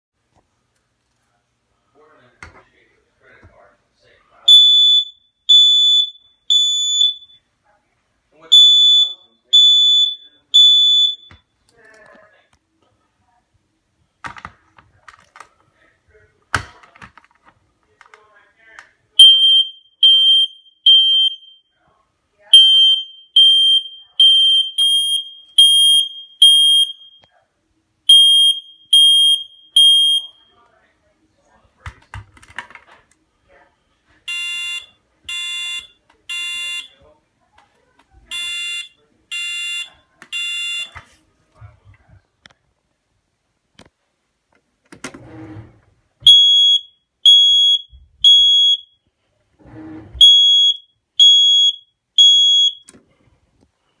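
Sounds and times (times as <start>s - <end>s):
smoke alarm beeps: 4.5s - 7.5s, 8.5s - 11.5s, 19.2s - 21.7s, 22.4s - 27.3s, 28.1s - 30.5s, 34.2s - 37.0s, 38.3s - 41.0s, 46.2s - 49.0s, 50.2s - 52.9s.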